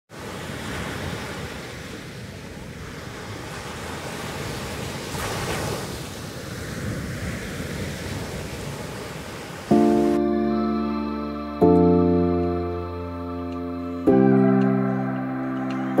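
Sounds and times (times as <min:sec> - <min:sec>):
surf washing onto beach: 0:00.1 - 0:10.2
wind: 0:00.1 - 0:16.0.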